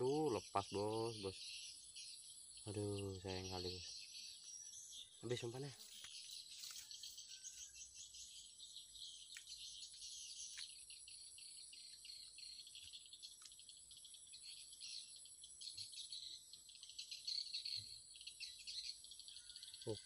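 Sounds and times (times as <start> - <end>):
insects chirring: 0.0 - 20.0
faint ticks: 12.7 - 13.8.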